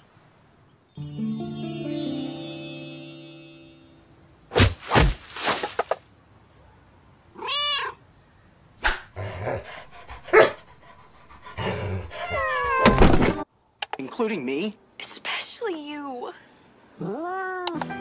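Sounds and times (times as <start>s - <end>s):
sharp knocks and thuds: 4.6s - 6.0s
cat meowing: 7.4s - 8.0s.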